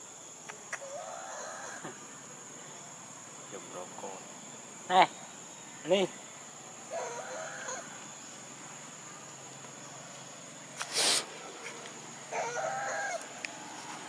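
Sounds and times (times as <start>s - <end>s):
high insect drone: 0.0s - 14.0s
rooster crowing: 0.8s - 2.1s, 6.8s - 8.1s, 12.2s - 13.5s.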